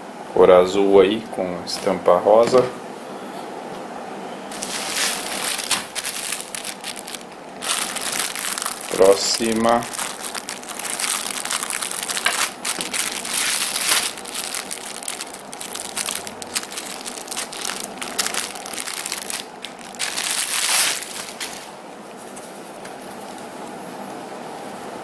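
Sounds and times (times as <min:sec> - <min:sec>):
plastic bag crinkling: 0:04.5 - 0:21.8
scissors cutting plastic: 0:11.0 - 0:15.1.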